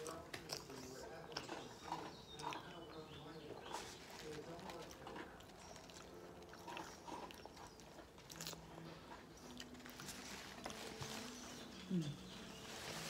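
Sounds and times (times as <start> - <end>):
person chewing: 0.0 - 2.8, 4.6 - 10.8
person humming low: 11.8 - 12.3.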